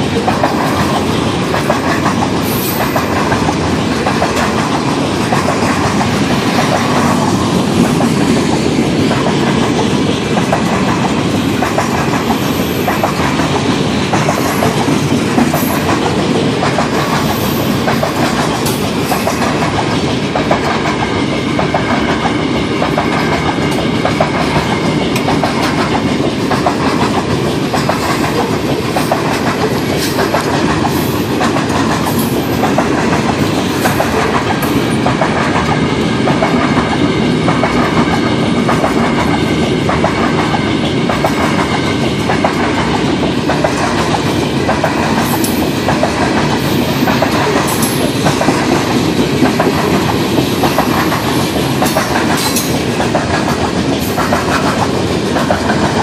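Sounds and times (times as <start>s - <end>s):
freight train rumbling past: 0.0s - 56.0s
wheels clacking over rail joints: 0.0s - 56.0s.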